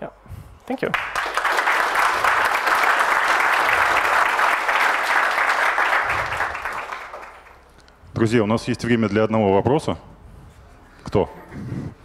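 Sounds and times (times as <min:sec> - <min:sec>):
audience applauding: 0:00.9 - 0:07.7.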